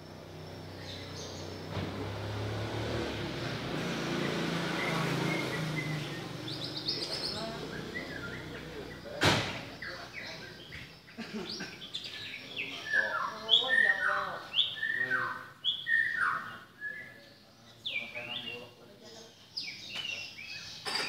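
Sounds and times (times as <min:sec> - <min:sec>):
motor vehicle running: 0:00.0 - 0:11.0
bird singing whistled phrases: 0:04.8 - 0:08.6, 0:12.3 - 0:18.5
sharp knock: 0:09.2 - 0:09.7.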